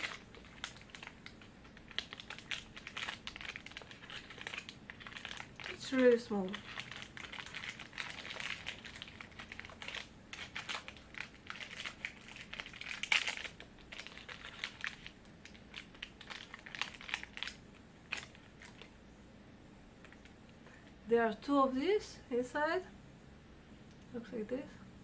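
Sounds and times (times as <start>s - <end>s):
candy wrapper crinkling: 0.0s - 19.0s.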